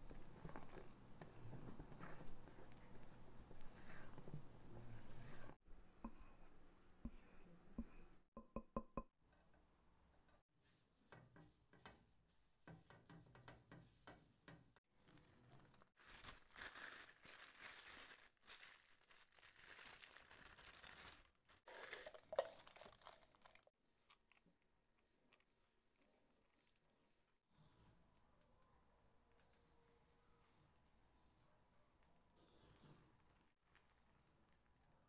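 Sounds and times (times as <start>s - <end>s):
plastic bag crinkling: 15.0s - 23.7s, 33.6s - 34.7s.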